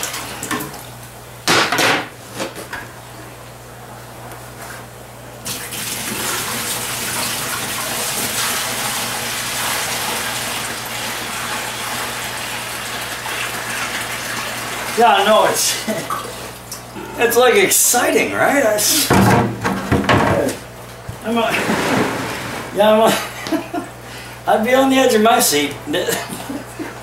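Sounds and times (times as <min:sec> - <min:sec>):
loud knocks: 0:19.1 - 0:20.6.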